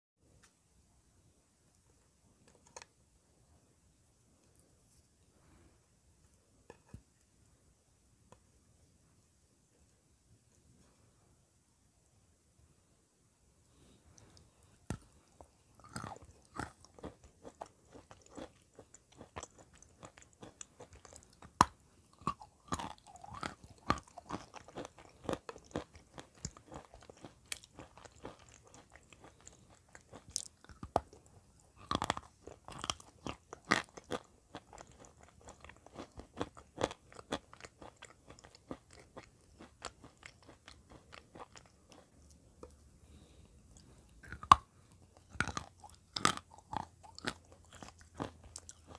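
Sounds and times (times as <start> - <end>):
person chewing crunchy clay: 14.2 - 48.9.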